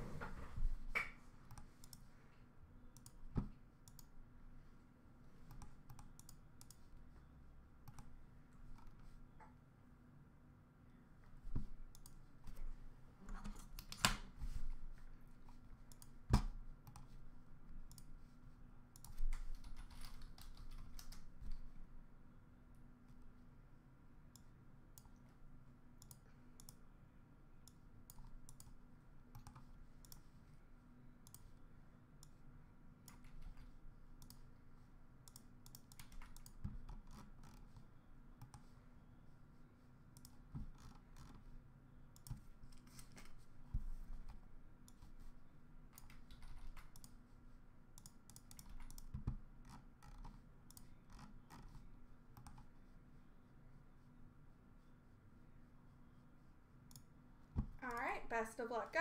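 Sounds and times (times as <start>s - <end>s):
faint irregular clicking: 1.5s - 2.1s, 2.9s - 4.2s, 5.4s - 6.9s, 7.8s - 9.6s, 11.3s - 14.1s, 14.9s - 17.2s, 17.8s - 18.2s, 18.9s - 21.7s, 24.3s - 25.3s, 26.0s - 26.8s, 27.6s - 30.5s, 31.2s - 31.6s, 32.2s - 34.5s, 35.2s - 38.8s, 40.2s - 41.5s, 42.2s - 45.2s, 45.9s - 47.2s, 48.0s - 52.7s, 56.8s - 58.1s.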